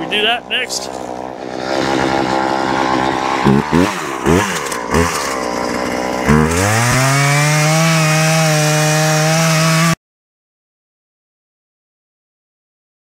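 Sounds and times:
chainsaw engine revving: 0.0s - 10.0s.

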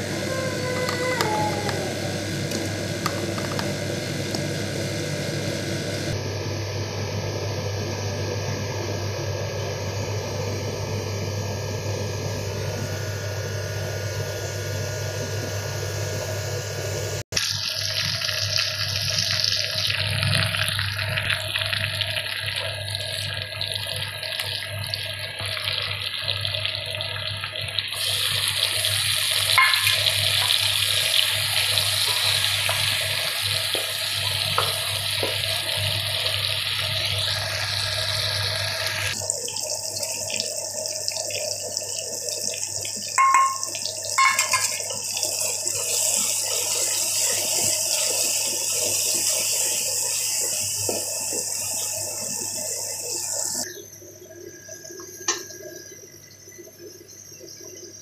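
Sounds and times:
onions sizzling in a pan: 17.5s - 40.8s, 42.9s - 53.7s
wooden spoon knocking a pan: 29.6s - 30.1s, 43.2s - 44.8s.

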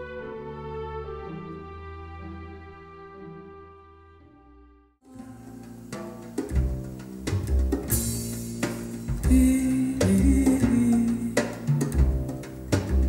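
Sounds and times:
deep bass notes: 5.1s - 13.0s
sharp drum hits: 5.9s - 13.0s.

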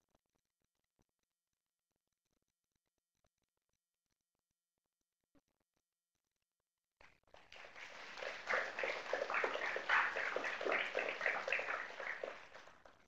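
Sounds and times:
audience applauding: 7.4s - 13.0s.

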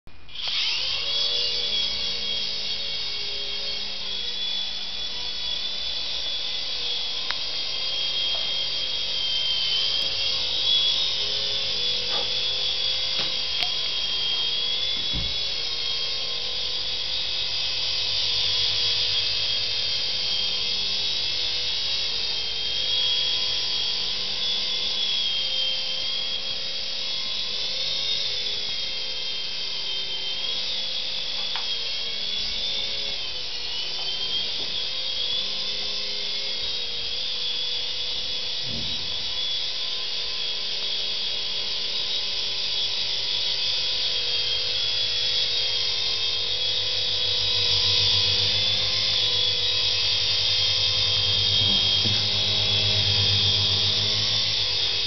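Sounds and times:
electric motors whining: 0.1s - 55.0s
helicopter rotors whirring: 0.3s - 55.0s.

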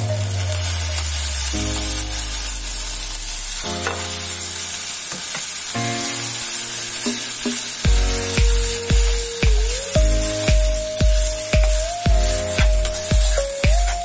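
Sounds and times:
background music: 5.6s - 14.0s.

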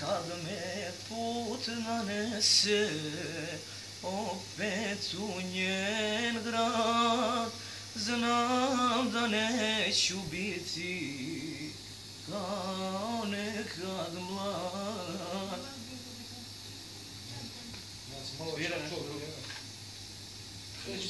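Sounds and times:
person singing slow melody: 0.0s - 16.8s.

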